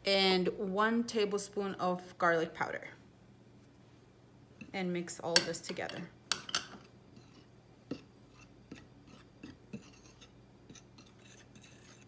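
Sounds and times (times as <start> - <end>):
fork scraping flour: 6.5 - 12.0.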